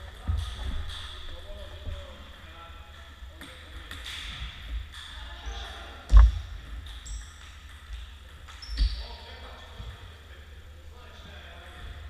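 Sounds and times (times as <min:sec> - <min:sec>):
loud thump: 0:06.1 - 0:06.4.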